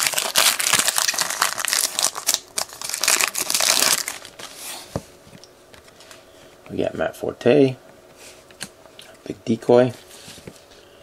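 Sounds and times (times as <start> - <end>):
foil wrapper crinkling: 0.0 - 4.5.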